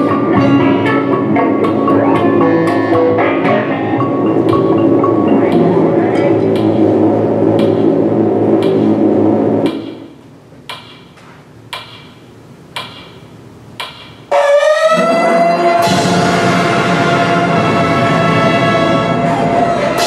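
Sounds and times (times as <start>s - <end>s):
concert band playing: 0.0s - 9.9s, 14.5s - 20.0s
low instruments: 0.0s - 20.0s
sharp percussive ticks: 6.5s - 6.8s, 7.6s - 7.9s, 8.6s - 8.9s, 10.7s - 11.1s, 11.7s - 13.2s, 13.8s - 14.2s.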